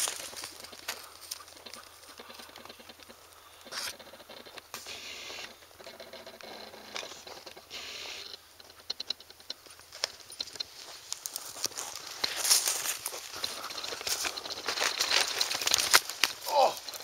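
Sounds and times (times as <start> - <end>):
short bursts of hiss: 4.8 - 5.6, 7.7 - 8.4.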